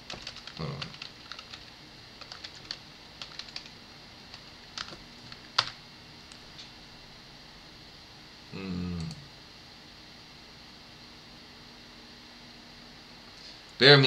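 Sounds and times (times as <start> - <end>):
typing on keyboard: 0.0 - 3.7, 4.3 - 5.8.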